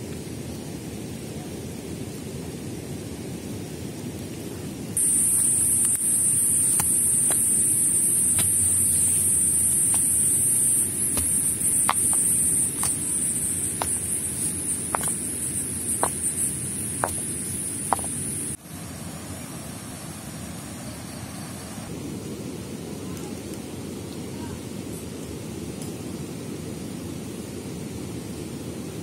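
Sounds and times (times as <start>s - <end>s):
high-pitched hiss: 0.0s - 29.0s
stones knocking together: 5.0s - 18.5s.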